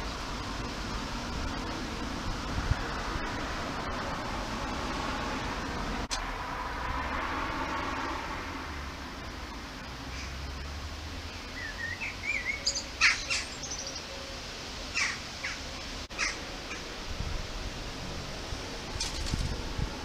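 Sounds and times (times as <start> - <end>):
small birds chirping: 11.2 - 16.8.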